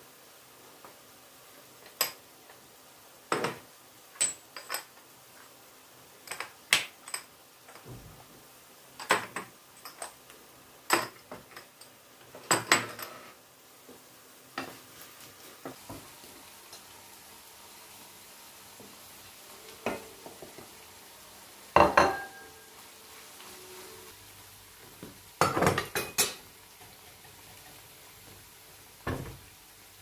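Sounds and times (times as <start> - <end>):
ceramic dishes clinking: 19.8 - 20.6, 21.8 - 22.7.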